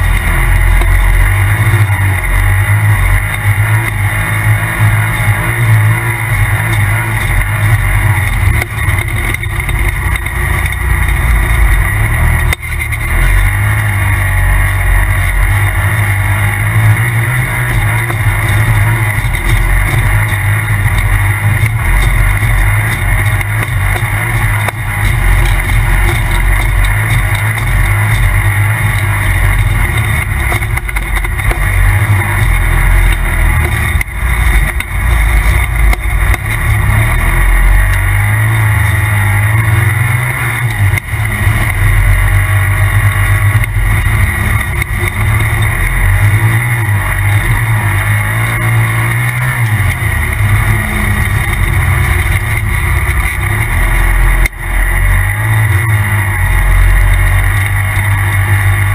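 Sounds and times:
turbocharged engine revving: 0:00.0 - 0:58.9.

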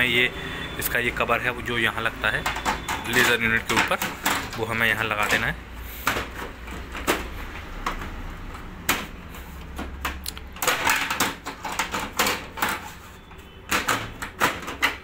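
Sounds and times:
plastic clicks and rattles: 0:02.3 - 0:12.9, 0:13.7 - 0:15.0.

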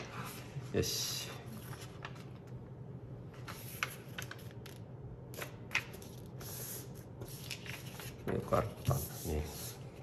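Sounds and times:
paper folding and crackling: 0:03.4 - 0:04.8.

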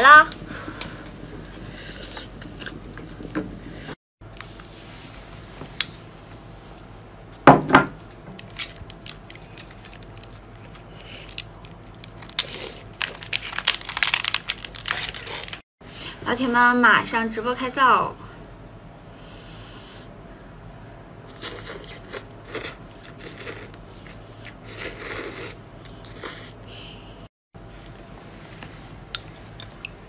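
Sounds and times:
crisp crunching and crackling: 0:08.4 - 0:15.6.

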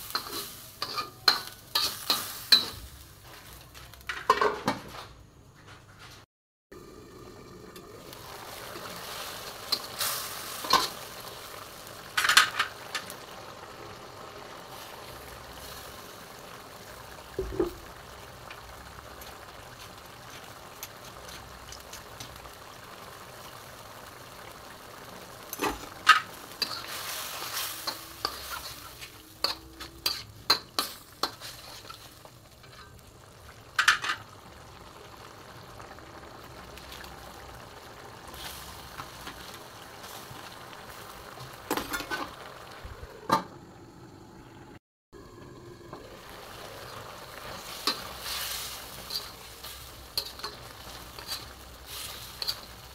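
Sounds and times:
metal ladle scraping and clinking: 0:00.1 - 0:02.8, 0:47.8 - 0:52.8
curry bubbling in a wok: 0:06.8 - 0:52.9.

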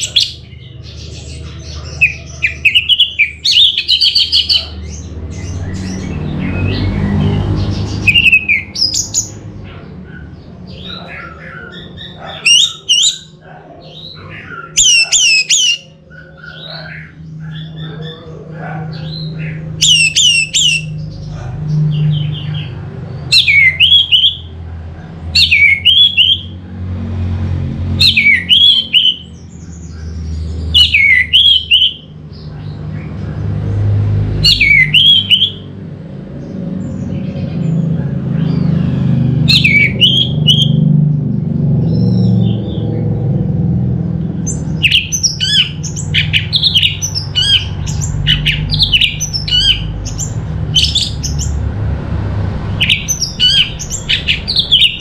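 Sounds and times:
low rumble: 0:47.0 - 0:55.0
quiet bird twittering: 0:52.8 - 0:55.0.

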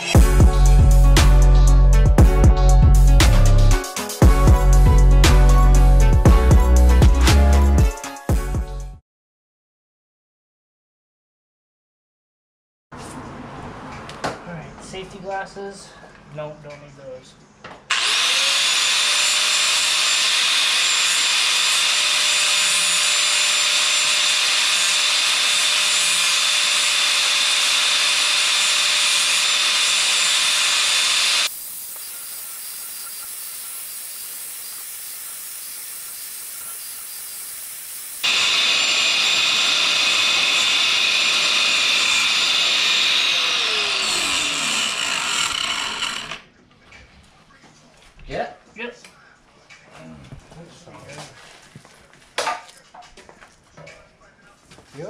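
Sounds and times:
cut-off wheel grinding steel: 0:17.9 - 0:46.4.

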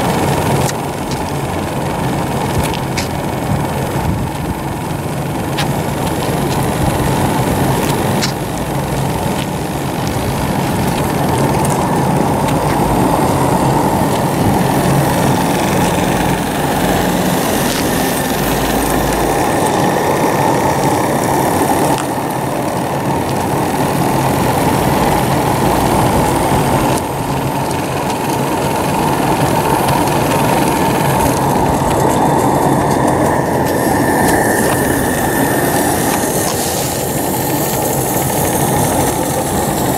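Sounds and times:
model steam engine hissing: 0:28.3 - 0:39.9.

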